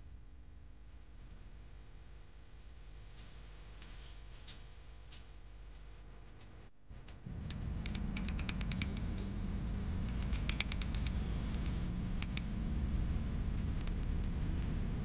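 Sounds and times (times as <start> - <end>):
low rumble: 6.8 - 15.0.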